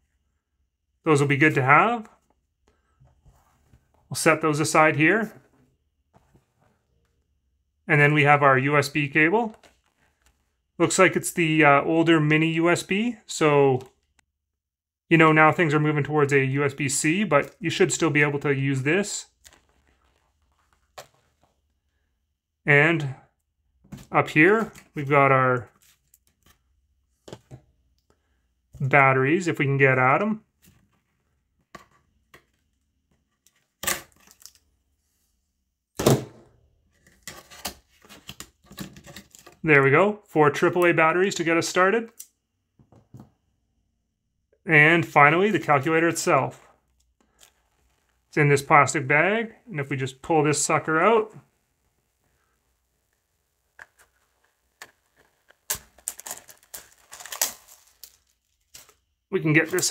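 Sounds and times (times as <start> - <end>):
plastic bag crinkling: 19.4 - 21.5, 54.4 - 59.0
cardboard scraping crackle: 19.4 - 21.7, 54.0 - 59.0.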